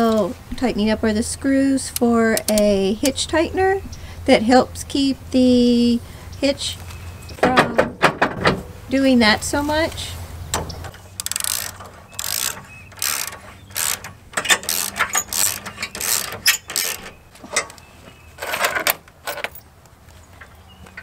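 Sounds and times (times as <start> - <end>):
ratchet wrench clicking: 10.9 - 17.1.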